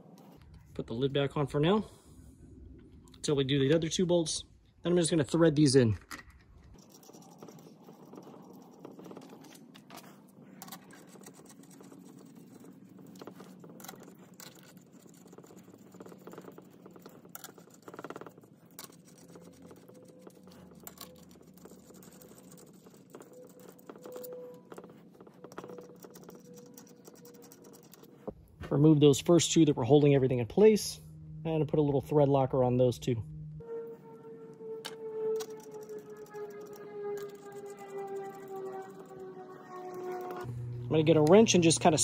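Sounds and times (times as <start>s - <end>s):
bolts clicking and scraping: 34.5s - 40.5s.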